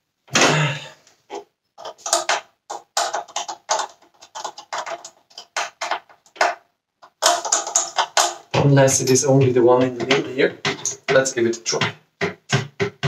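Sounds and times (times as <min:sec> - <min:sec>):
plastic clicks and rattles: 0:01.8 - 0:08.5.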